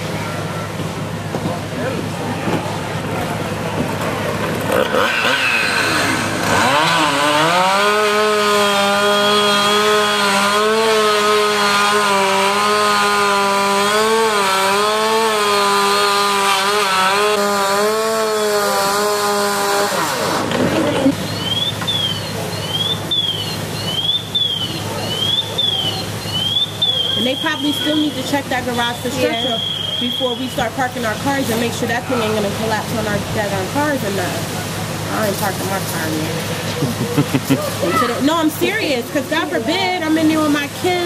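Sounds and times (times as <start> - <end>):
chainsaw running at high revs: 4.5 - 21.1.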